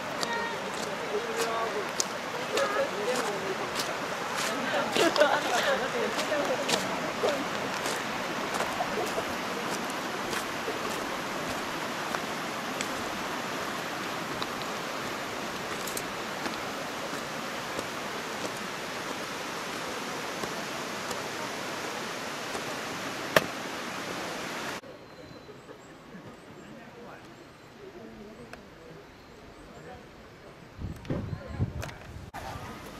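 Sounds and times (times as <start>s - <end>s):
river rushing over boulders: 0.0s - 24.8s.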